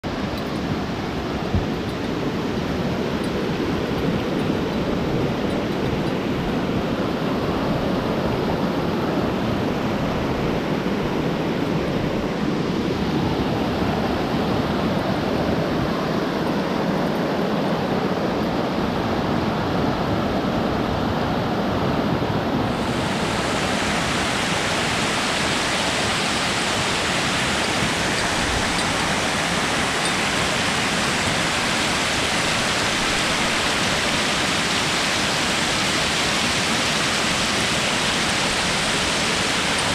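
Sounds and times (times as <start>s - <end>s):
creek rushing over rocks: 22.7s - 39.9s.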